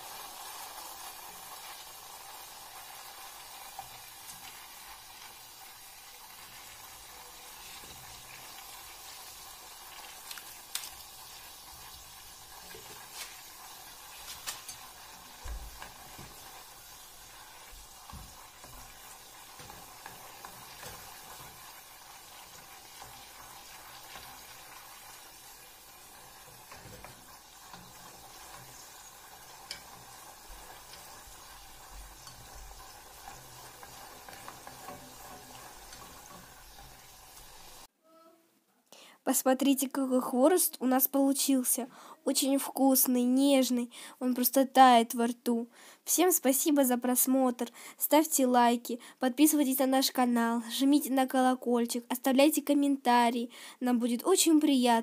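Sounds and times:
dough sizzling in hot oil: 0.0s - 37.9s.

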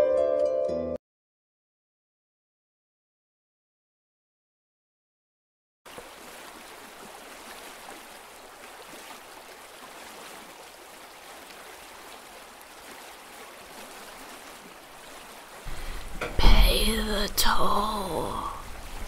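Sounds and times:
river water rushing: 5.9s - 19.0s.

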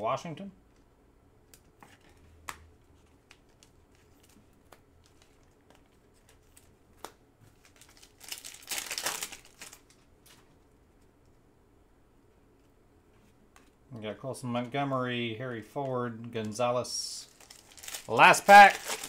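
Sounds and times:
wrapper crinkling: 7.5s - 10.4s, 17.2s - 19.0s.

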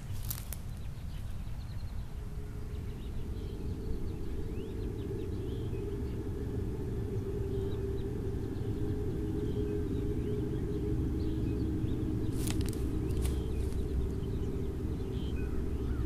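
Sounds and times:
faint bird chirps: 0.0s - 16.0s
steady low hum: 0.0s - 16.0s
wind rumble on microphone: 0.0s - 16.0s.

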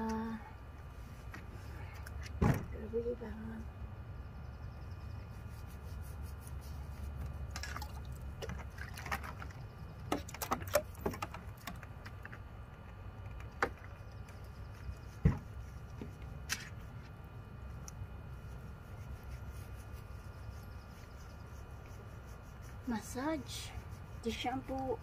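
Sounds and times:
water splashing and dripping: 7.5s - 11.8s
steady low rumble: 11.4s - 25.0s.

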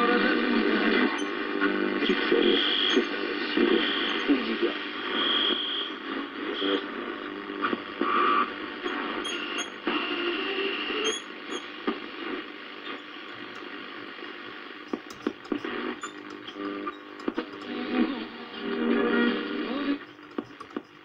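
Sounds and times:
radio static hiss: 0.0s - 21.0s
radio whistling tones: 0.9s - 6.0s, 8.0s - 11.9s.

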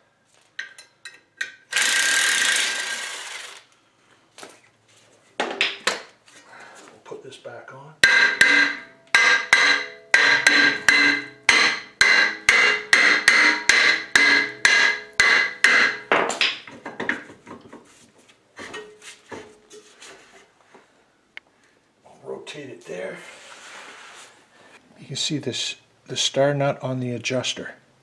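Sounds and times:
hammer striking ringing metal rotor: 8.0s - 16.1s.

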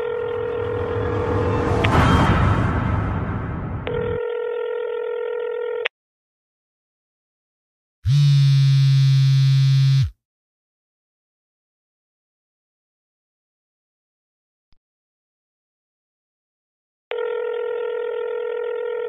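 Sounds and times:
buzzy low tone: 0.0s - 4.2s
phone ringback tone: 3.9s - 5.9s, 17.1s - 19.0s.

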